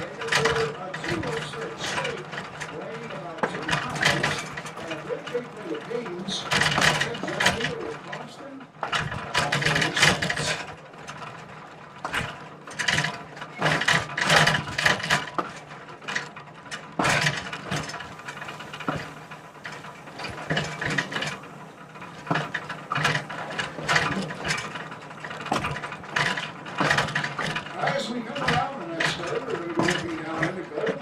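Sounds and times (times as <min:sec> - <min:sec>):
low train rumble: 0:00.0 - 0:31.0
train clanking and rattling: 0:00.0 - 0:31.0.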